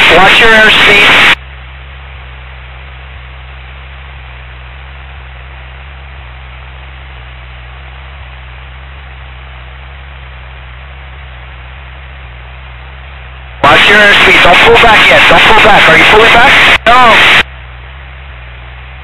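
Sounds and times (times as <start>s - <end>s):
intercom hiss: 0.0s - 1.4s, 13.6s - 17.4s
aircraft engine at full throttle: 0.0s - 19.0s.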